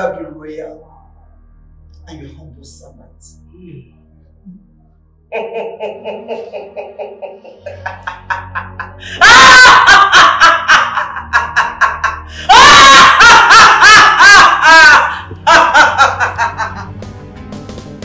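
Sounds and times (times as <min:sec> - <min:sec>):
woman laughing loudly: 0:05.4 - 0:16.8.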